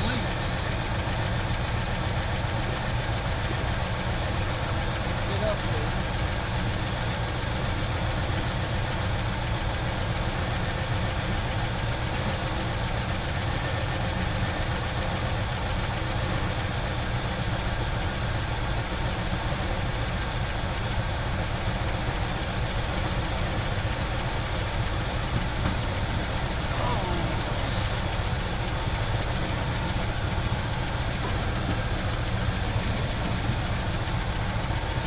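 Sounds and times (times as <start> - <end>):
car engine idling: 0.0 - 35.0.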